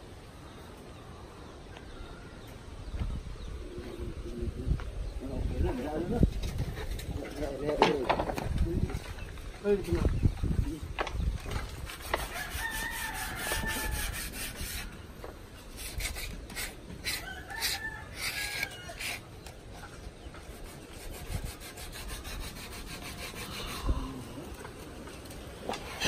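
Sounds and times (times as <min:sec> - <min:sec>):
sandpaper rubbing on wood: 0:11.8 - 0:15.0, 0:15.7 - 0:19.2, 0:20.4 - 0:24.0
rooster crowing: 0:12.2 - 0:14.4, 0:17.1 - 0:19.2.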